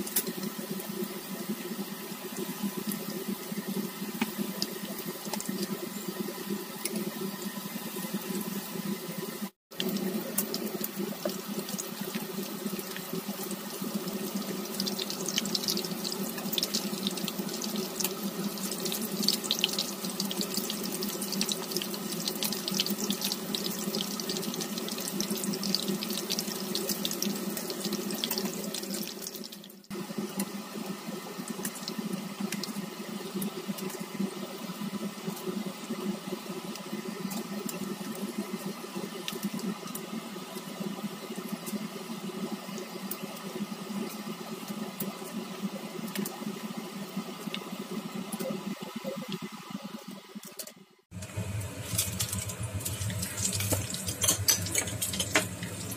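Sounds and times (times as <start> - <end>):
chicken frying in hot oil: 0.0 - 55.9
low hum: 51.2 - 55.9.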